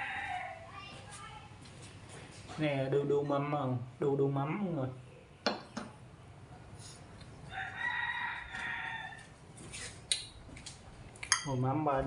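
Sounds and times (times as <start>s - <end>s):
rooster crowing: 0.0s - 0.7s, 7.4s - 9.4s
metal bowl clinking on table: 11.3s - 11.6s.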